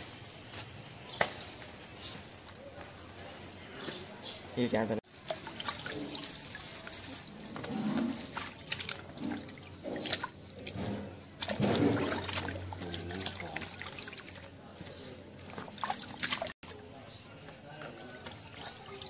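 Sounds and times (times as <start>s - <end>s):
water sloshing in a basin: 5.0s - 19.0s
water splashes and drips: 5.0s - 19.0s.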